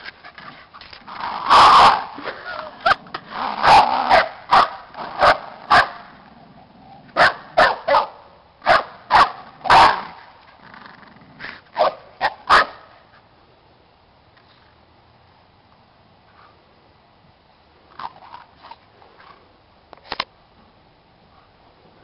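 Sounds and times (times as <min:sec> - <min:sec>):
dog barking: 0:03.6 - 0:06.0, 0:07.2 - 0:10.0, 0:11.8 - 0:12.8.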